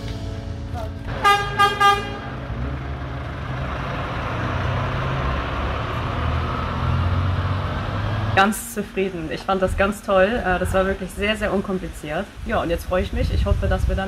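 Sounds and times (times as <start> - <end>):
bus engine rumbling: 0.0 - 14.0
bus horn toots: 1.1 - 2.6.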